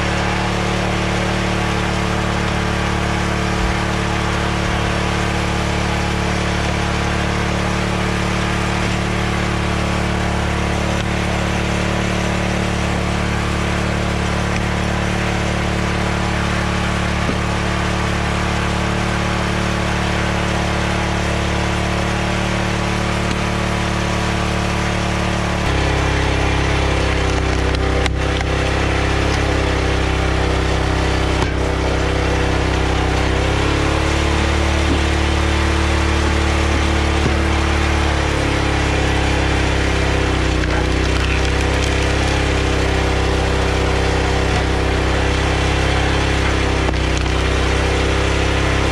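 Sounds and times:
log splitter engine running: 0.0s - 48.9s
wood splitting cracks: 25.7s - 48.0s.

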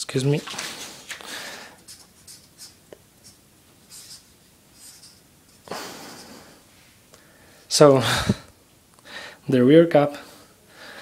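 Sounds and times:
marker scratching on paper: 1.8s - 5.6s.

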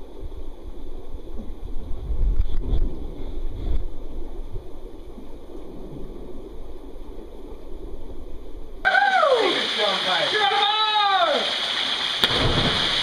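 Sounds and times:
creek water running over rocks: 8.8s - 13.0s.

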